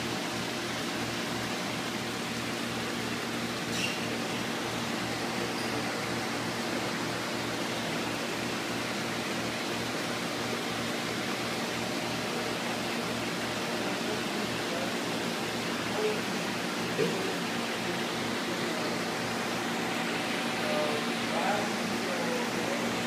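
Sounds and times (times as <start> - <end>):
aquarium filter hiss and hum: 0.0 - 23.0.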